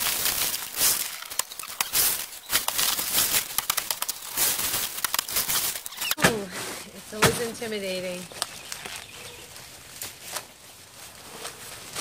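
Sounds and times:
ice cubes clattering into plastic bins: 0:00.0 - 0:06.2
plastic bags crinkling: 0:00.0 - 0:06.2, 0:07.0 - 0:12.0.

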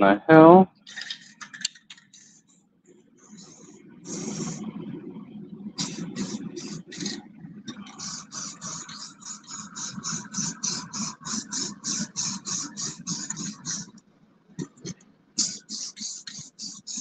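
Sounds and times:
steady hum: 0:00.0 - 0:17.0
spray paint can hissing bursts: 0:03.4 - 0:04.6, 0:05.8 - 0:07.2, 0:07.8 - 0:13.9, 0:15.4 - 0:17.0.

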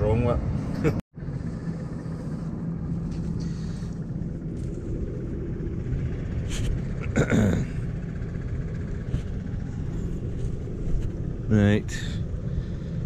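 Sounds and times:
tractor diesel engine idling: 0:01.2 - 0:13.0.

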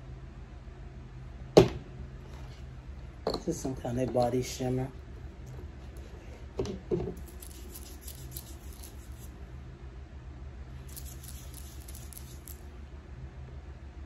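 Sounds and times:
steady low hum: 0:00.0 - 0:14.0
hands rubbing oil into skin: 0:07.2 - 0:09.3.

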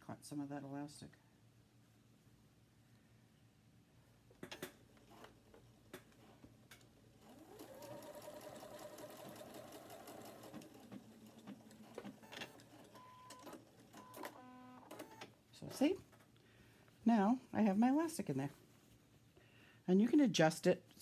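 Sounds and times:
sewing machine stitching: 0:07.2 - 0:15.2.

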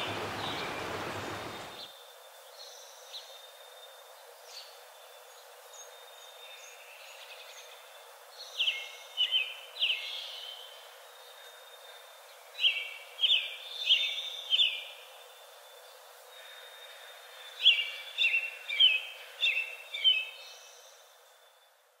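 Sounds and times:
bird chirping: 0:00.0 - 0:01.8.

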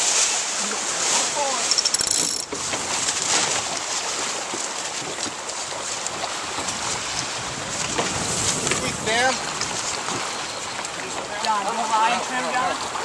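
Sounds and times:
wind and water rushing: 0:00.0 - 0:13.0
wind on microphone: 0:06.1 - 0:10.9.

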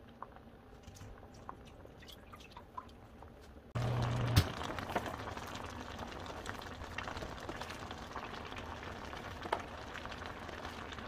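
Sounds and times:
stew bubbling: 0:00.0 - 0:11.0.

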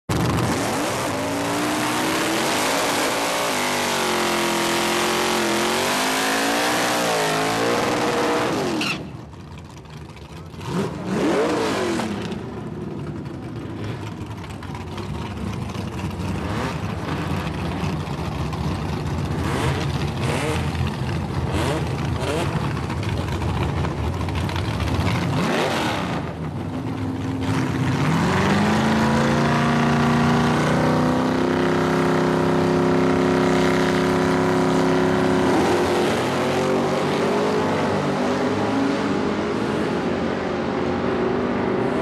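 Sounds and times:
car engine revving: 0:00.1 - 0:09.0, 0:09.8 - 0:14.6, 0:15.2 - 0:42.0
car engine idling: 0:09.1 - 0:10.6, 0:12.3 - 0:25.1.

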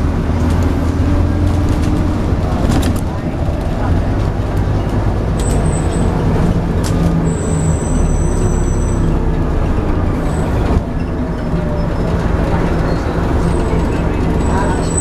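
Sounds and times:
bus engine droning: 0:00.0 - 0:15.0.

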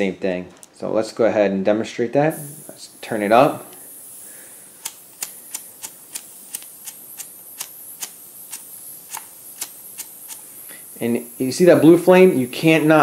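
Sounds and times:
flint igniter clicking: 0:04.8 - 0:10.5.

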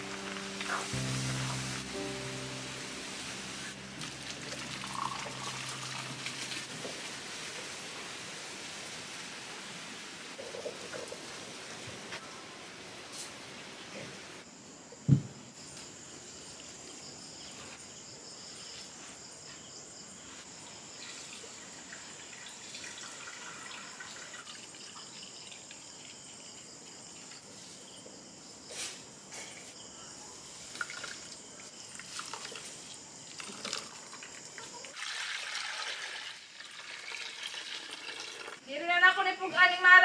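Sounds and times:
wash of noise: 0:00.0 - 0:10.3
liquid trickling and dripping: 0:04.0 - 0:07.4, 0:21.0 - 0:27.4, 0:30.7 - 0:38.7.

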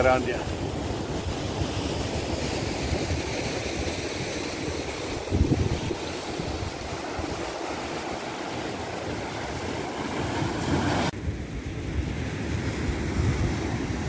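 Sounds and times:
surf breaking over rocks: 0:00.0 - 0:11.2
wind buffeting microphone: 0:00.0 - 0:14.0.

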